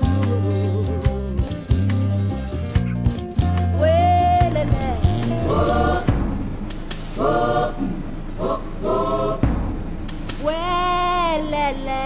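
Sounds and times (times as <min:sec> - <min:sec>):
choir singing: 0:03.4 - 0:06.2, 0:07.2 - 0:09.5.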